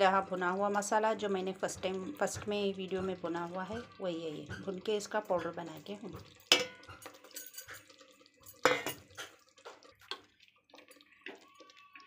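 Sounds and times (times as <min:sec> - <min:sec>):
spoon clinking on metal: 0:06.4 - 0:09.2.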